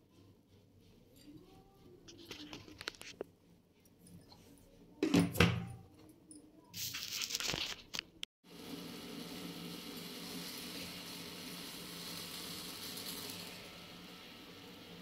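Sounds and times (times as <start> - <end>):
rustling and scraping handling noise: 0.0 - 5.2, 5.8 - 8.3.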